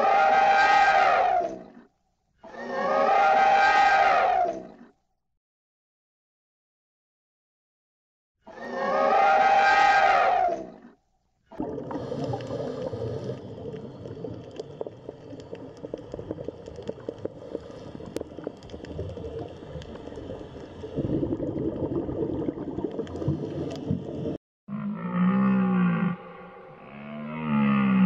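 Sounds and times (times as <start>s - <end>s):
elephant trumpeting: 8.6s - 10.5s
underwater gurgling: 11.5s - 24.4s.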